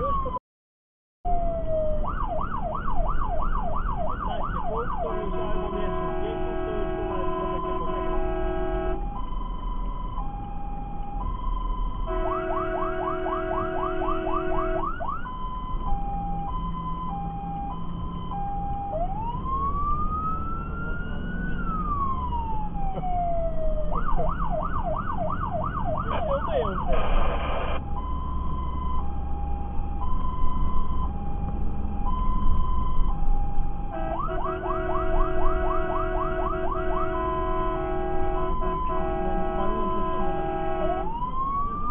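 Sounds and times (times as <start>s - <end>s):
fire engine siren: 1.3s - 41.9s
truck engine rumble: 1.4s - 41.9s
horn blast: 5.1s - 9.0s, 33.9s - 41.1s.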